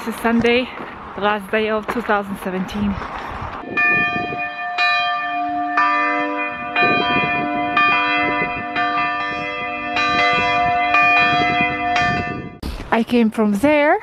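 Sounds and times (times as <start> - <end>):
church bells ringing: 3.6 - 12.6.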